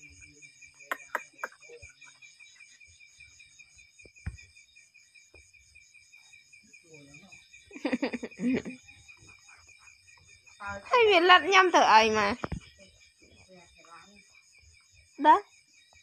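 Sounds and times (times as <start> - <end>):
night insects chirping: 0.0 - 16.0.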